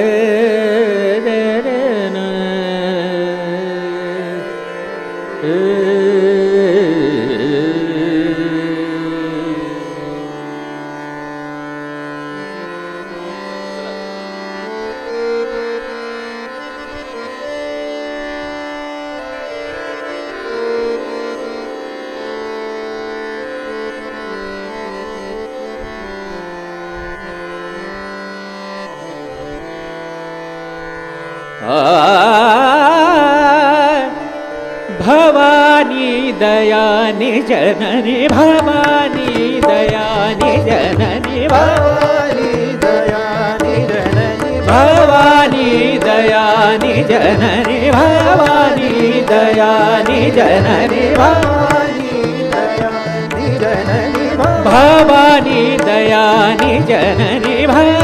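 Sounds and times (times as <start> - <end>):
man singing classical vocal: 0.0 - 17.7, 31.6 - 58.0
harmonium: 0.0 - 58.0
tanpura drone: 0.0 - 58.0.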